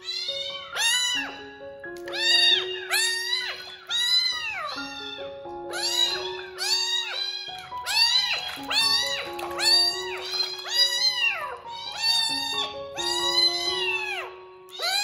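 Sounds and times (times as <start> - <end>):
background music sustained notes: 0.0 - 15.0
kitten meowing: 0.0 - 15.0.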